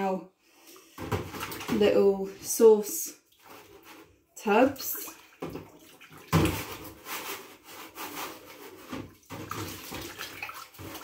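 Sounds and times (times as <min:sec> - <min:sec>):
water splashing in a sink: 0:00.6 - 0:11.0.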